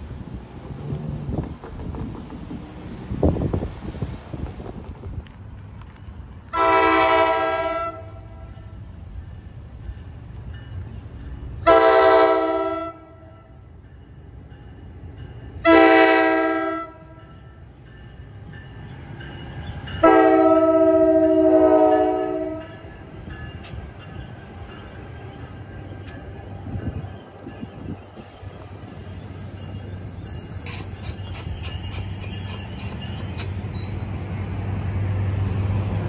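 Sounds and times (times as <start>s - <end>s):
train rumbling: 0.0s - 36.0s
multi-note train horn: 6.5s - 8.7s, 11.6s - 13.5s, 15.6s - 17.3s, 20.0s - 22.7s.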